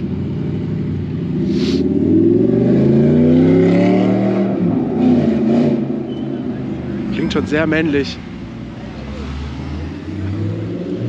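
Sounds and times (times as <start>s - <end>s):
car engine accelerating past: 1.4s - 6.4s.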